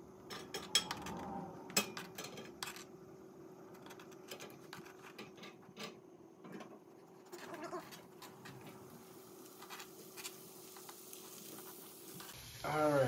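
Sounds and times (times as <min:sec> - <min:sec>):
low hum: 0:00.0 - 0:04.0.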